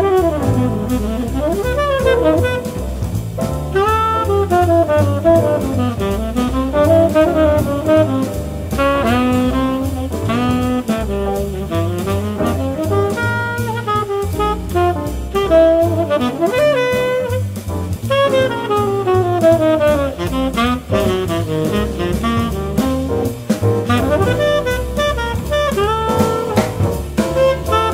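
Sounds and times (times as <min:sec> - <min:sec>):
bass: 0:00.0 - 0:27.9
drums: 0:00.0 - 0:27.9
tenor saxophone solo: 0:00.0 - 0:27.9.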